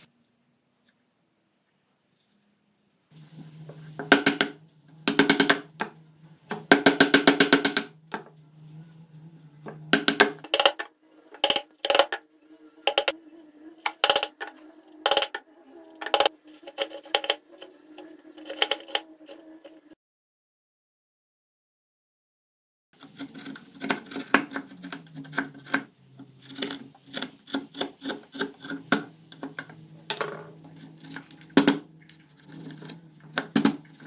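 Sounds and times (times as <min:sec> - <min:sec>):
steady low hum: 0:03.0 - 0:20.0, 0:28.2 - 0:34.0.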